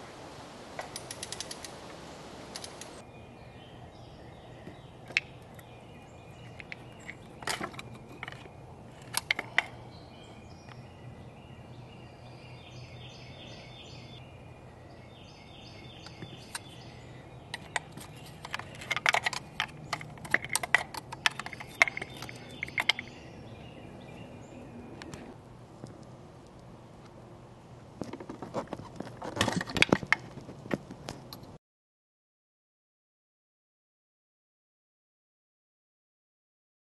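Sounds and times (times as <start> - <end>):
birds chirping faintly: 0.0 - 26.8
clicks and rattles of engine parts: 6.4 - 9.8, 17.5 - 23.2, 28.0 - 31.6.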